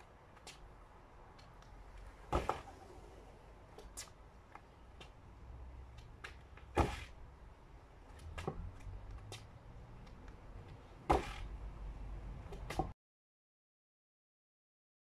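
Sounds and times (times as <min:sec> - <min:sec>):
footsteps tapping on paving: 0:03.7 - 0:05.3.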